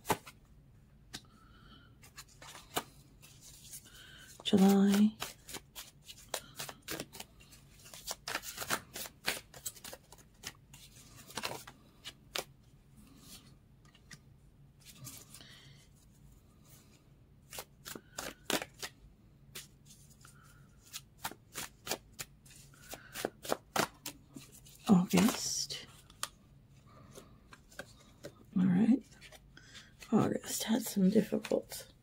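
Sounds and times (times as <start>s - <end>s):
cards being shuffled: 0.0s - 0.4s, 2.0s - 12.5s, 17.4s - 26.4s.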